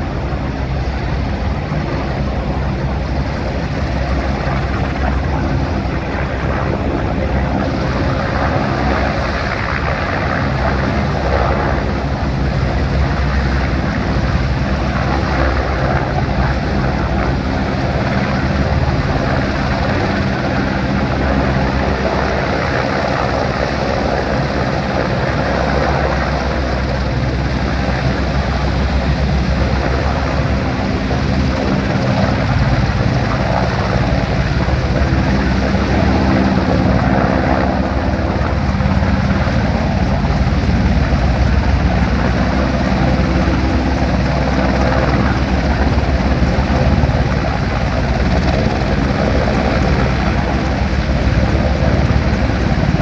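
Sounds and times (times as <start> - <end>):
helicopter rotors droning: 0.0 - 53.0.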